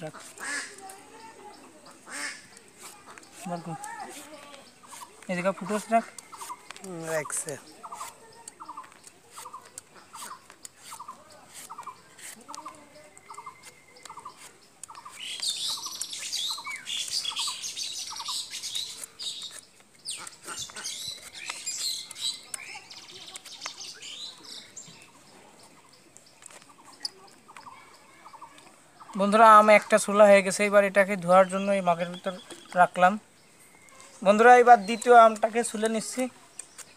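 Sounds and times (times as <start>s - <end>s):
peeler scraping mango skin: 0.0s - 1.1s, 2.1s - 24.5s, 34.4s - 36.9s
small birds chirping: 0.0s - 36.9s.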